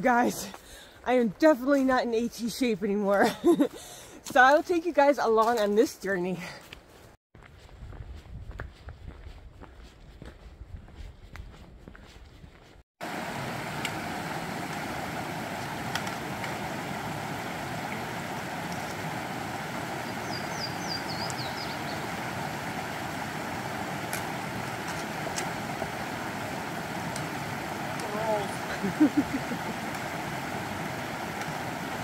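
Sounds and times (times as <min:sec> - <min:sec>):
creek water rushing: 0:13.0 - 0:32.0
bird chirping: 0:20.0 - 0:22.1.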